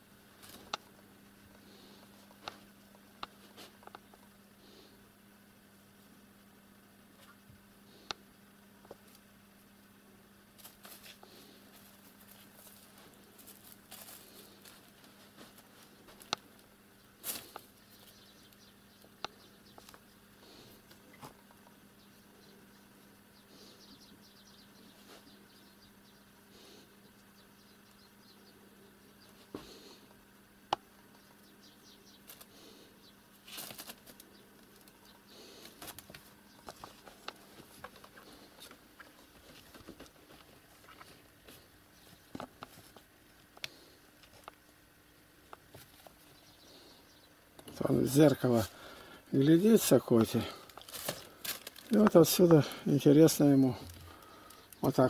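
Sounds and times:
faint steady hum: 0.0s - 55.0s
rustling of papers: 10.6s - 16.3s, 33.4s - 35.0s, 50.5s - 52.7s.

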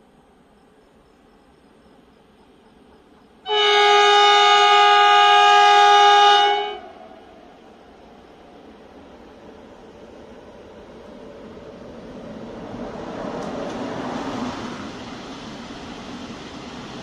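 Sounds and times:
train horn chord: 3.5s - 7.3s.

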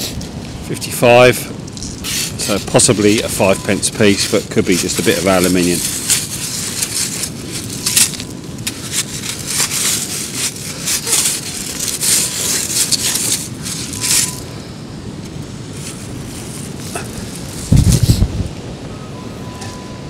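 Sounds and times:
metal scoop crunching pebbles: 1.7s - 14.5s.

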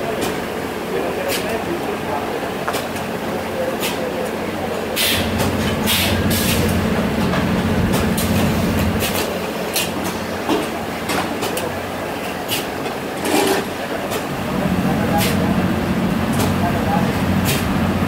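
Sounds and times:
short pneumatic hisses: 5.0s - 6.6s.

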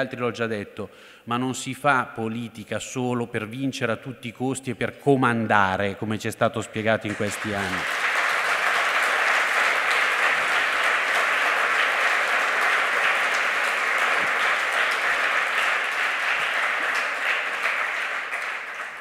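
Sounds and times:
crowd clapping: 7.0s - 19.0s.

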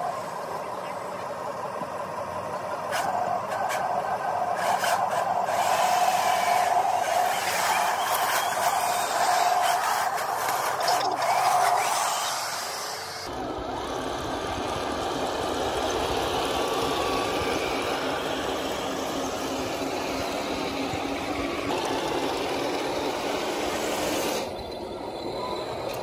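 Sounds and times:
model tank motors and tracks: 0.0s - 26.0s.

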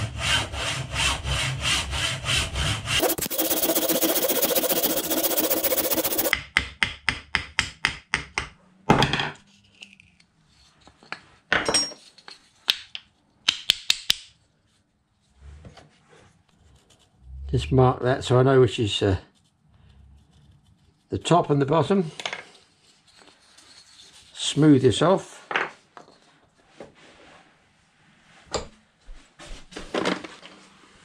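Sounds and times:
hand saw cutting wood: 0.2s - 6.3s.

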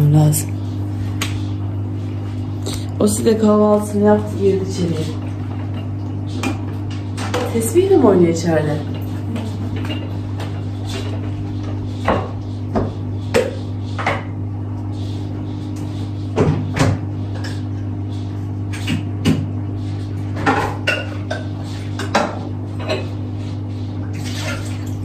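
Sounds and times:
steady low hum: 0.0s - 25.0s
dishes knocking and clinking: 20.4s - 23.1s.

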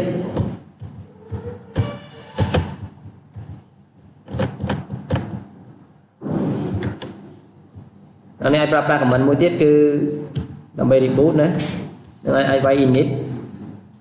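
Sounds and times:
keyboard and mouse clicks: 4.2s - 5.4s, 6.7s - 7.9s.

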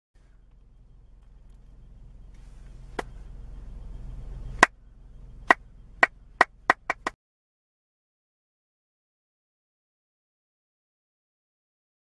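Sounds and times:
low hum: 0.2s - 7.2s.

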